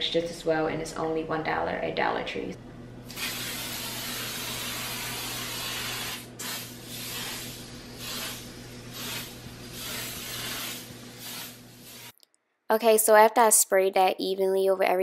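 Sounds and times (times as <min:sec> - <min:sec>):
aerosol can spraying: 0:03.1 - 0:12.2.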